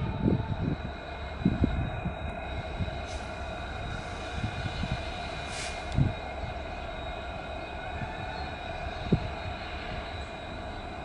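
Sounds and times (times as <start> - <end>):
diesel locomotives running with whine: 0.0 - 11.0
brief hiss: 5.5 - 6.0.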